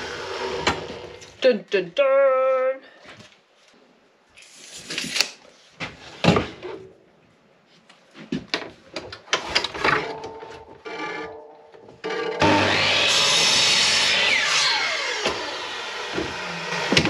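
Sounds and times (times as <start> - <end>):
mitre saw motor whirring: 12.2 - 17.0.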